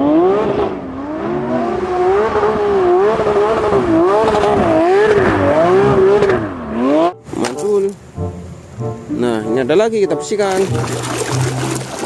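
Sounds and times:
car engine revving: 0.0s - 7.2s.

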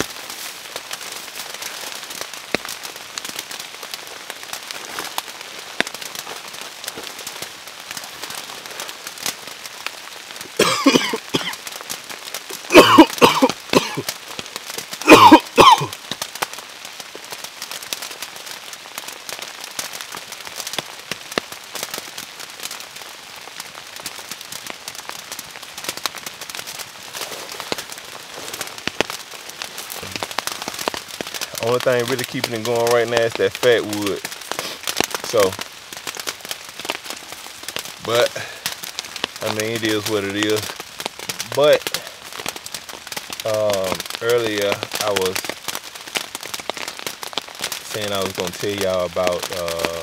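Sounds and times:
campfire crackling: 0.0s - 50.0s
steady rain: 0.0s - 50.0s
man coughing: 10.6s - 11.6s, 12.7s - 14.0s, 15.1s - 15.9s.

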